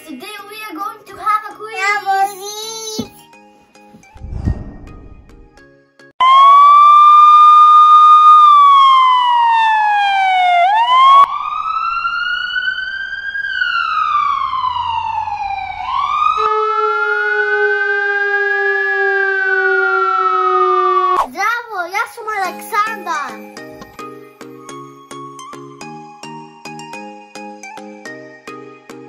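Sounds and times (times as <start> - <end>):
ambulance siren: 6.2 - 21.2
wailing sirens: 6.2 - 21.2.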